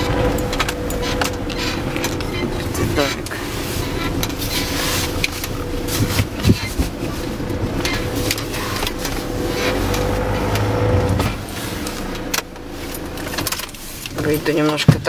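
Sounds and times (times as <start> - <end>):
knocks and rattles: 0.0 - 11.5
car engine running: 0.0 - 15.0
road rumble: 0.0 - 15.0.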